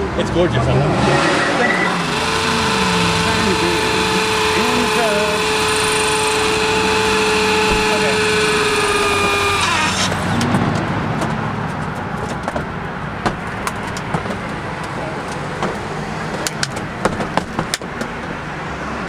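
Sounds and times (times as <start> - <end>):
road traffic hum: 0.0 - 19.0
power drill whine: 1.8 - 10.1.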